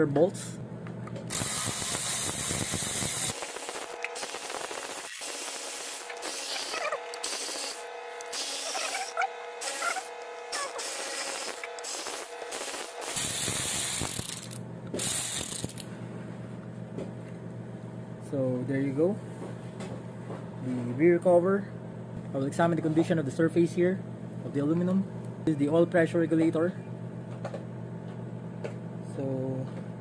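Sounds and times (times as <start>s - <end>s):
electric ratchet whirring: 1.3s - 15.9s.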